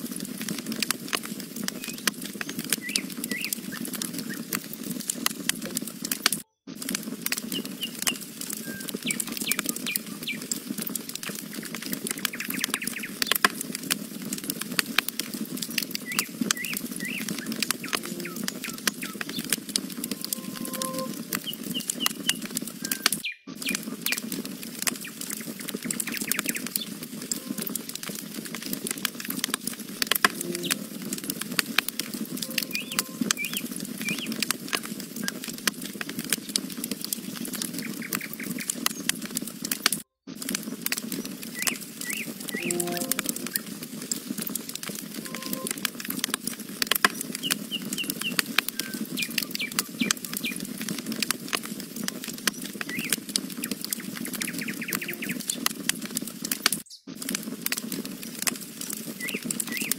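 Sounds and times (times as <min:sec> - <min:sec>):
campfire crackling and popping: 0:00.0 - 0:59.9
small birds chirping: 0:01.3 - 0:04.9, 0:07.3 - 0:13.8, 0:15.6 - 0:28.0, 0:32.1 - 0:39.4, 0:40.6 - 0:44.3, 0:47.0 - 0:50.9, 0:51.7 - 0:55.8, 0:57.8 - 0:59.9.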